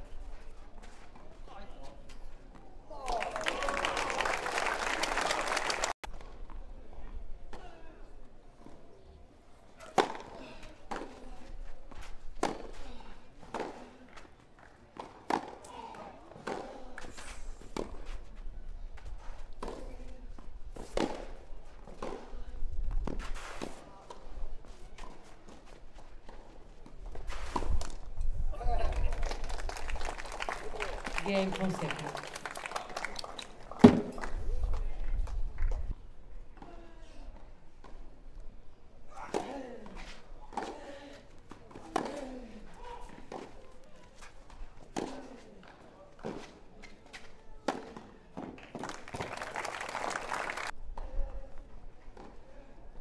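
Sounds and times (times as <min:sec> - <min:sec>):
racket hitting tennis ball: 0:09.9 - 0:11.2, 0:12.4 - 0:12.8, 0:20.7 - 0:22.3, 0:41.7 - 0:43.6
tennis ball hit by rackets: 0:09.9 - 0:11.2, 0:12.4 - 0:12.8.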